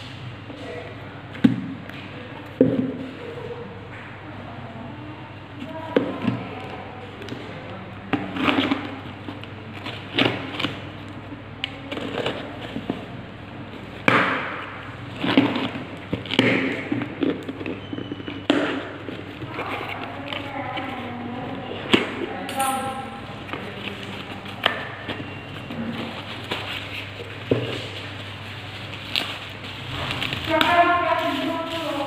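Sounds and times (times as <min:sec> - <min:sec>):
plastic wrap crinkling and tearing: 0:23.6 - 0:32.0.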